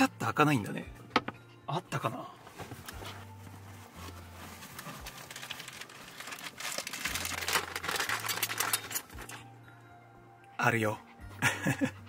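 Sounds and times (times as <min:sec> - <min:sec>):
plastic bag crinkling: 0:03.9 - 0:09.4.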